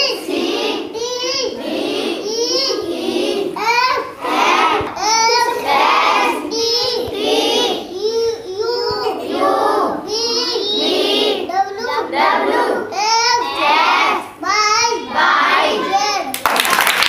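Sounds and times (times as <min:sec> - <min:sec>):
children clapping: 0:16.3 - 0:17.0.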